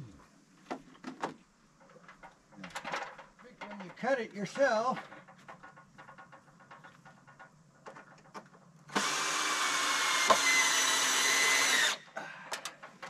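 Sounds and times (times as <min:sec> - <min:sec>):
faint knocks and clicks: 0:00.6 - 0:08.8
cordless drill motor running: 0:08.9 - 0:12.0.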